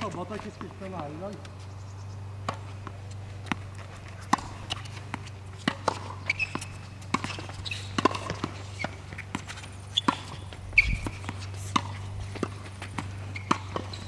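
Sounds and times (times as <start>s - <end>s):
steady low hum: 0.0s - 14.0s
tennis ball struck by rackets: 2.4s - 14.0s
shoe squeaks: 3.0s - 14.0s.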